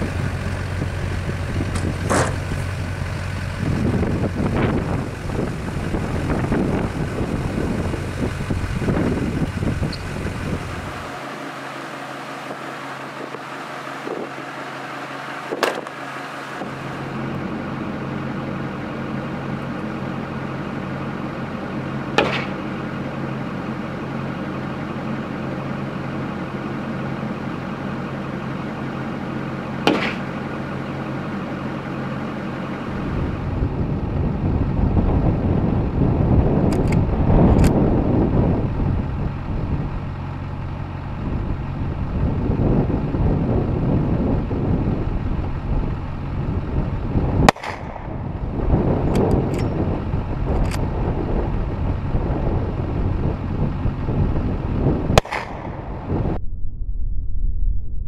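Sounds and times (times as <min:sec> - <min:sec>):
diesel engine idling: 0:00.0 - 0:56.4
rifle shots: 0:22.2 - 0:22.7, 0:29.8 - 0:30.4, 0:47.5 - 0:48.1, 0:55.2 - 0:55.8.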